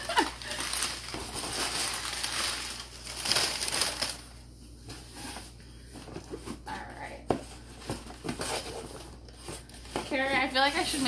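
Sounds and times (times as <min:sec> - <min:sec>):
packing paper crumpling: 0:00.0 - 0:04.4.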